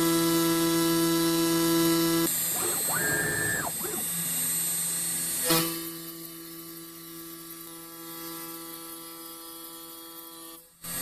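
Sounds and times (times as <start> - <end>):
router motor whine: 0.0 - 11.0
steady machine hum: 2.3 - 4.5.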